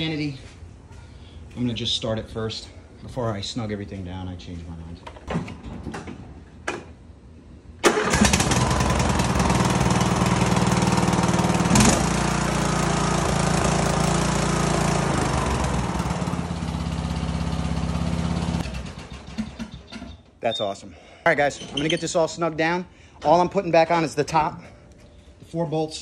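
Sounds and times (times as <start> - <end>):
riding mower engine running: 7.8 - 19.5.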